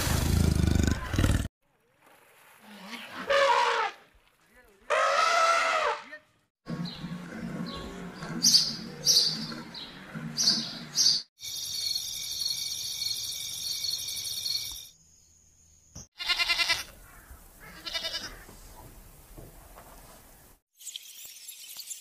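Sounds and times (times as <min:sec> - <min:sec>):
sparrows chirping: 0:06.7 - 0:16.1
goat bleating: 0:16.2 - 0:17.0, 0:17.6 - 0:18.4.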